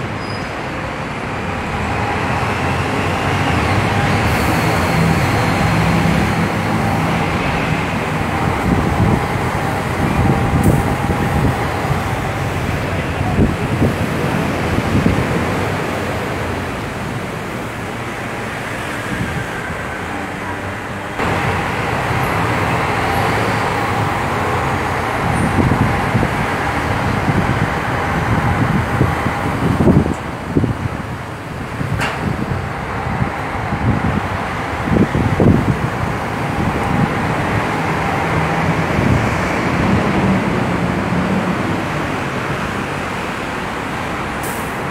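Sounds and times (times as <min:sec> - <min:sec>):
bus engine running: 0:00.0 - 0:44.9
city street traffic: 0:00.0 - 0:44.9.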